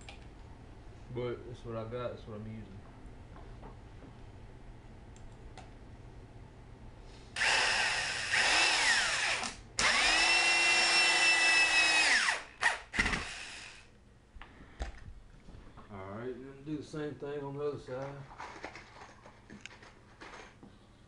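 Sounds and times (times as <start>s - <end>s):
electric drill motor whine: 7.4s - 13.9s.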